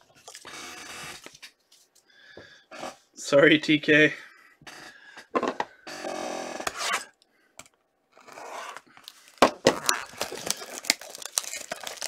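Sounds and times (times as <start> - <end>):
plastic shrink-wrap tearing: 9.0 - 12.0.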